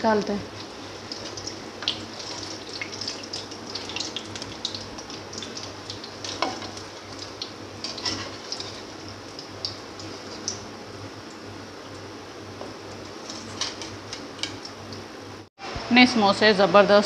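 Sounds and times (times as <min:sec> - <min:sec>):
deep-frying sizzle with crackles: 0:00.0 - 0:15.5.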